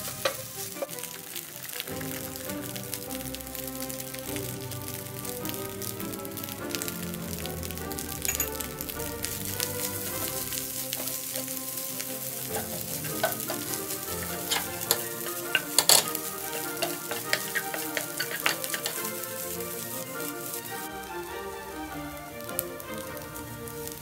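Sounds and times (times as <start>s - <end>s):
rice sizzling in a pan: 0.0s - 24.0s
spatula scraping a pan: 10.3s - 20.6s.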